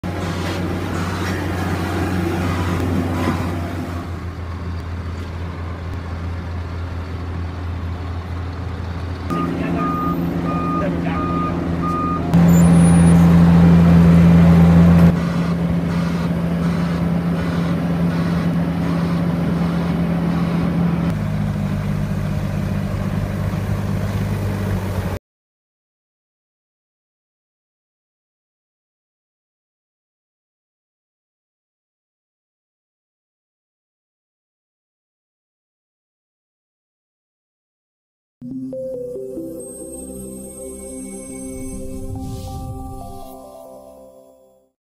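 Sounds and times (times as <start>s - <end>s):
diesel engines of road machinery: 0.0s - 25.2s
reversing alarm beeping: 9.3s - 13.8s.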